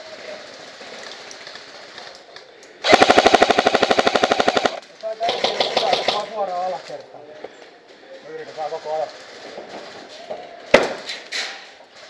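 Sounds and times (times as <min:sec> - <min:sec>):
airsoft rifle full-auto burst: 0:02.8 - 0:06.3.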